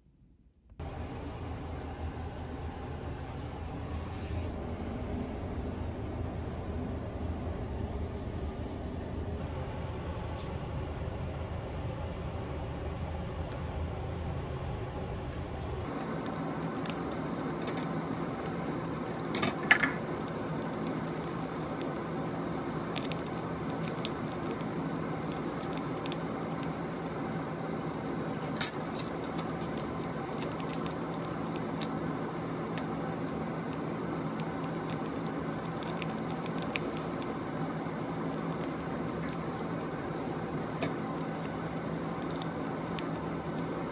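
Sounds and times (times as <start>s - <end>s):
steady low hum: 0.0s - 43.9s
plastic sachets crinkling: 15.9s - 43.9s.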